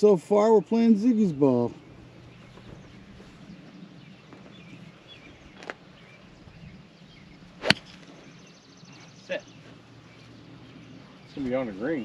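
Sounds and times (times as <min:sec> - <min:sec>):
faint bird chirps: 0:01.2 - 0:12.0
golf club striking ball: 0:07.6 - 0:08.1.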